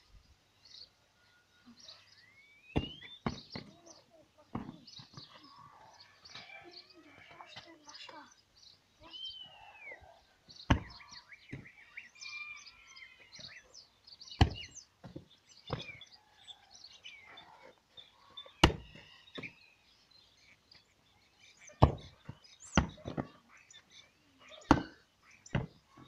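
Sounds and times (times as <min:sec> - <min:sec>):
birds chirping: 0:00.0 - 0:26.0
football kick thuds: 0:02.8 - 0:03.7, 0:10.7 - 0:11.6, 0:14.4 - 0:16.0, 0:18.6 - 0:18.9, 0:21.8 - 0:22.2.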